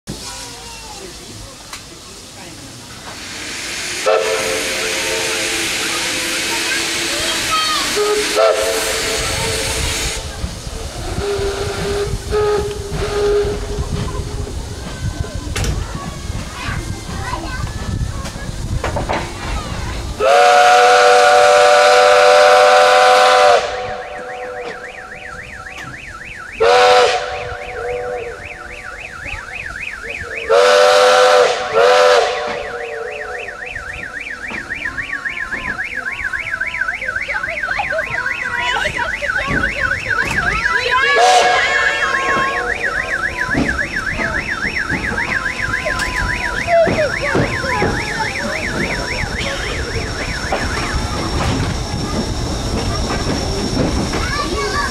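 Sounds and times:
train rhythmic running beat: 3.0s - 54.9s
steam locomotive whistle: 3.2s - 10.4s, 11.0s - 14.0s, 20.2s - 37.3s, 38.3s - 53.8s.

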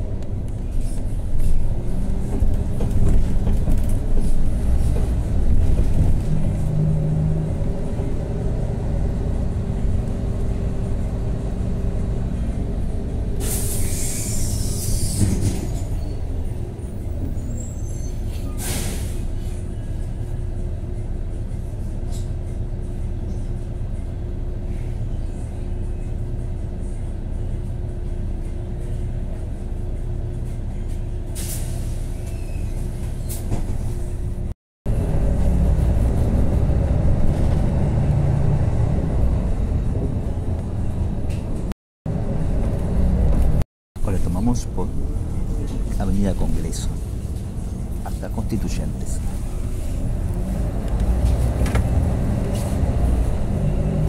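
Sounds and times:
bus engine droning: 0.0s - 54.0s
air brakes hissing: 13.4s - 16.0s, 17.4s - 19.7s, 31.3s - 33.5s.

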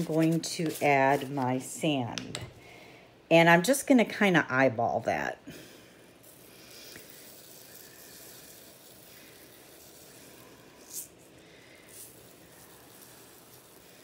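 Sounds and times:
sand pouring into barrel: 7.1s - 11.1s, 11.9s - 14.0s.

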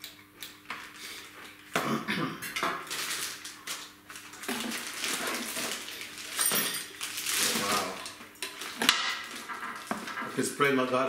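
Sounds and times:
plastic packaging crinkling: 2.8s - 10.5s
small metal parts clinking: 5.4s - 7.6s.

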